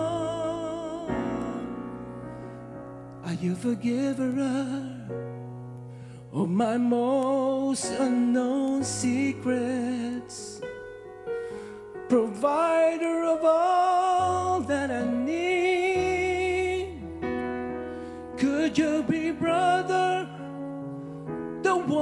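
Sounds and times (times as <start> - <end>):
person singing with vibrato: 0.0 - 2.2, 12.1 - 17.1, 18.3 - 20.6, 21.5 - 22.0
sustained keyboard chords: 0.0 - 22.0.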